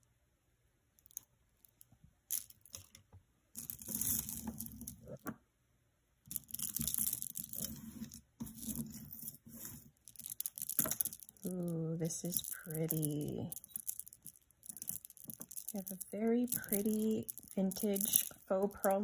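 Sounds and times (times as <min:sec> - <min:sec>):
beads and chain links clicking: 0:03.6 - 0:05.2, 0:06.3 - 0:19.0
necklaces rustling: 0:03.6 - 0:05.3, 0:06.3 - 0:19.0.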